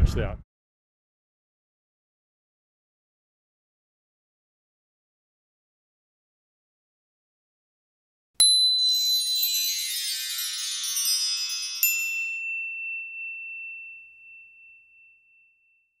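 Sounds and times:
shimmering chime sound effect: 8.4 - 15.8
high ringing ping: 8.4 - 16.0.

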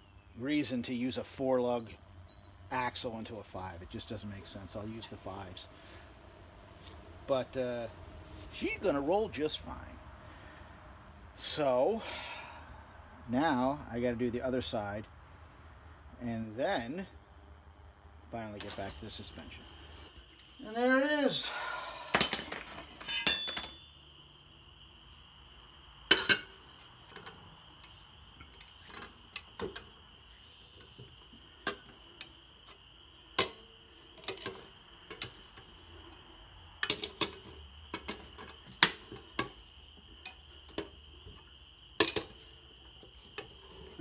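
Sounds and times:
wrench clinking on lug nuts: 22.2 - 23.9.

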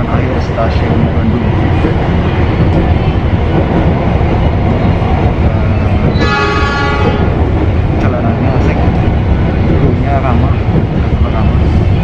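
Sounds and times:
train rumble inside coach: 0.0 - 12.0
locomotive horn: 6.2 - 7.4.

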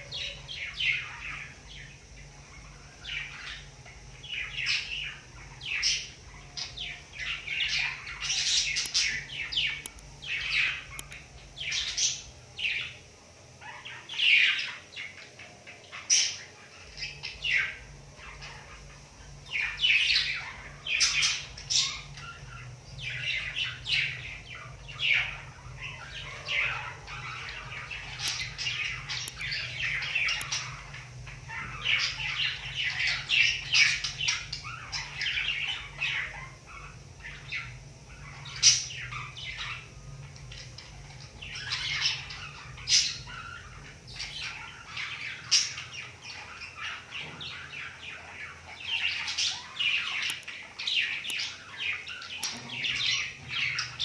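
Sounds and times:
budgerigar chirping: 16.0 - 54.0.

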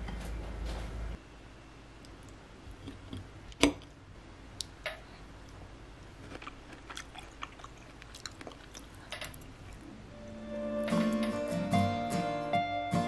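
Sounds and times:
soft chewing: 4.6 - 9.9.

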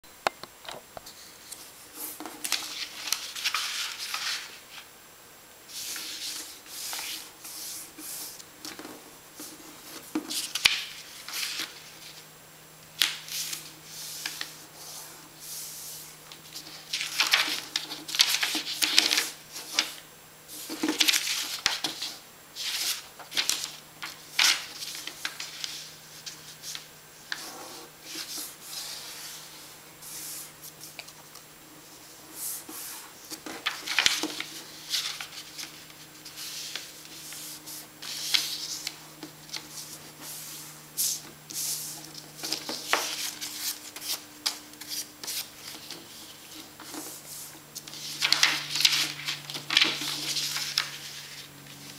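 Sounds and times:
paper rustling and swishing: 1.9 - 4.9, 5.7 - 12.2, 13.0 - 31.2, 31.9 - 51.9
paper fold clicks: 47.9 - 51.4.

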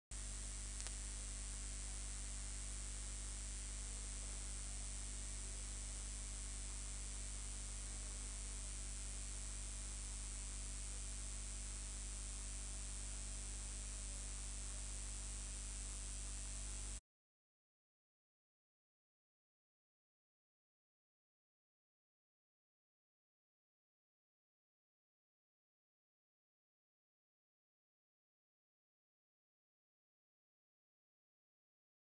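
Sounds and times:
electrical hiss: 0.1 - 17.0
low mains hum: 0.1 - 17.0.

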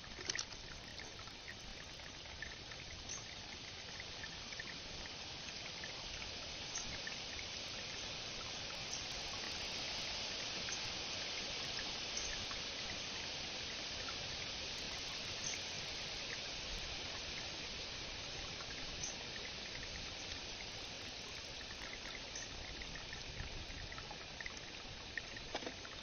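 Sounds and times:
water trickling: 0.0 - 26.0
faint ticks: 5.5 - 8.0, 18.6 - 20.7, 21.3 - 26.0.

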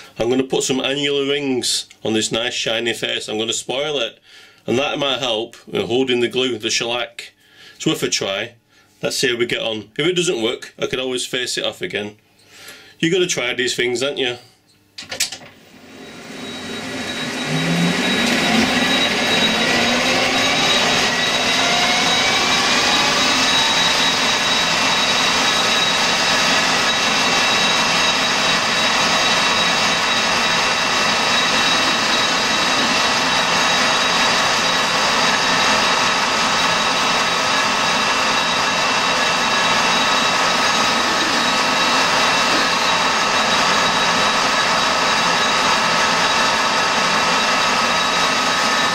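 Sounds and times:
metal lathe gear whine: 15.6 - 48.9.

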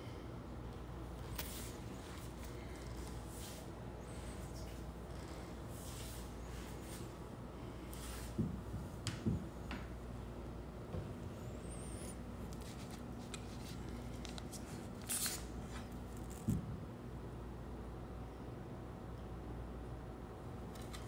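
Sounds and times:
faint steady hum: 0.0 - 21.0
paper rustling: 12.5 - 16.5.

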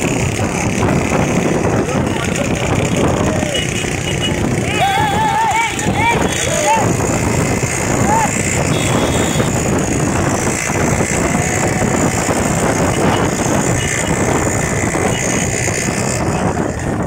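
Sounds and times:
motorcycle engine running: 0.0 - 17.0
wind rushing over microphone: 0.0 - 17.0.

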